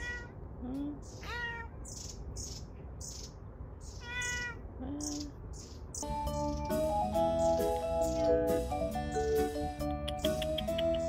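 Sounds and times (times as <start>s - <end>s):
cat meowing: 0.0s - 0.4s, 1.2s - 1.8s, 4.0s - 4.7s.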